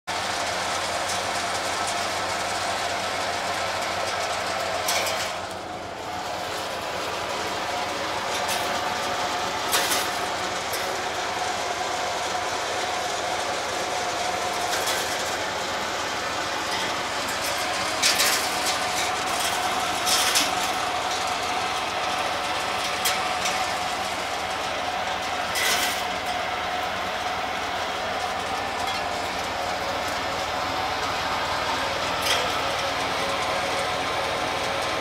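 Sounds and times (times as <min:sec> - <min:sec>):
husking machine rattling: 0:00.1 - 0:35.0.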